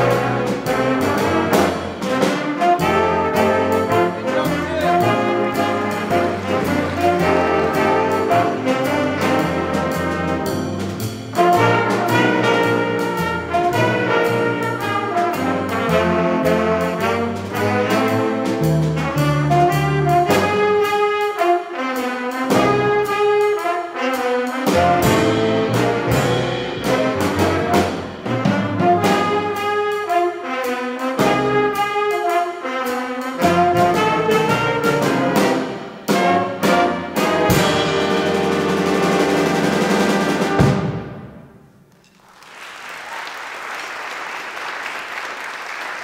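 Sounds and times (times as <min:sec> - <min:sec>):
drum and cymbal hits: 0:00.0 - 0:21.0, 0:22.3 - 0:30.2, 0:32.8 - 0:41.3
jazz big band playing: 0:00.0 - 0:42.1
audience applause: 0:42.1 - 0:46.0.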